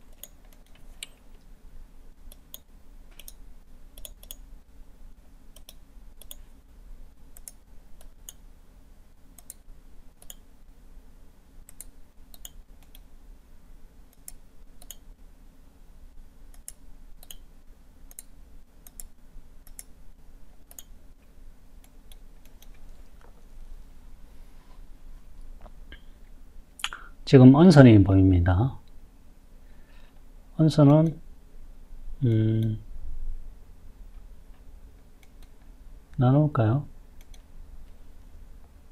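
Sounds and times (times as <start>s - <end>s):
faint low hum: 0.0s - 38.9s
mouse buttons clicking: 2.3s - 3.4s, 5.6s - 6.5s, 10.2s - 10.5s, 14.1s - 15.0s, 16.5s - 17.5s.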